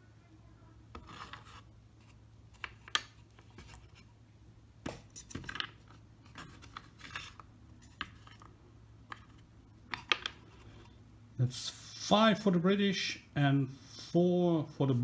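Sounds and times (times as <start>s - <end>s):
dice clicking on wood: 9.9s - 10.4s.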